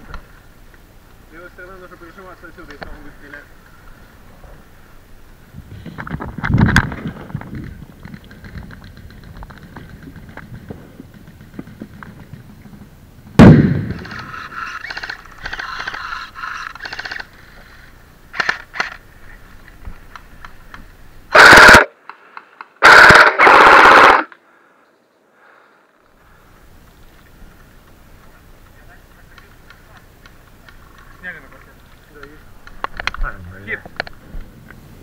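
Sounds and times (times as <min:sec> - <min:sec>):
loud bang: 0:13.4 - 0:14.2
airsoft rifles firing bursts: 0:21.3 - 0:21.9, 0:22.8 - 0:24.3.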